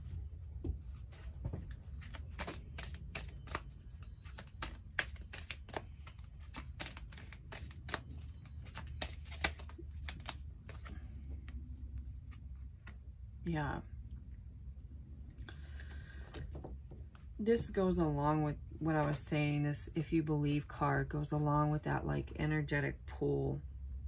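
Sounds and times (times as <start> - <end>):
low steady hum: 0.0 - 24.0
cards being shuffled: 1.2 - 11.6.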